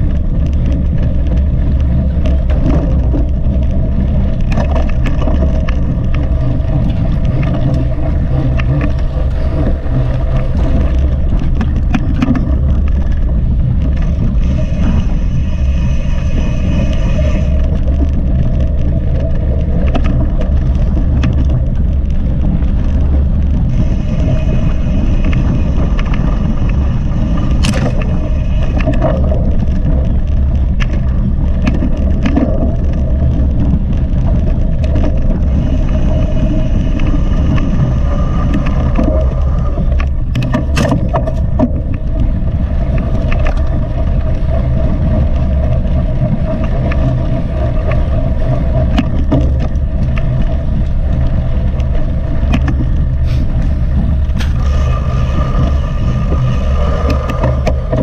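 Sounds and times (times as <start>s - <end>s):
bike knocking and rattling: 0.0s - 15.0s, 17.6s - 27.0s, 39.9s - 48.2s
wind rumble on microphone: 0.0s - 58.0s.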